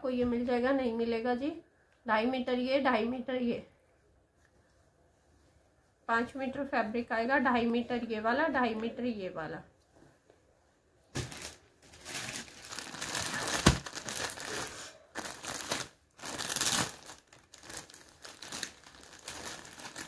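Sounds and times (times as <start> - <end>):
plastic packaging crinkling: 11.1 - 20.0.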